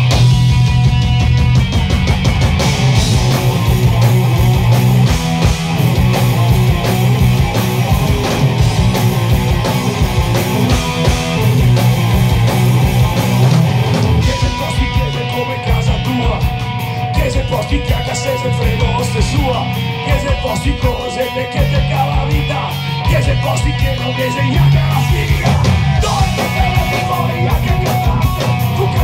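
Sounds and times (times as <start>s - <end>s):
live punk rock band: 0.0s - 29.0s.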